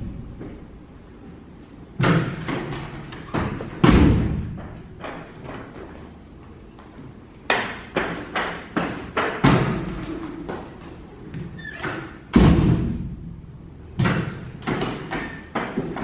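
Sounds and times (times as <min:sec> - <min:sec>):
heavy thuds and knocks: 0:02.0 - 0:05.9, 0:12.3 - 0:13.2.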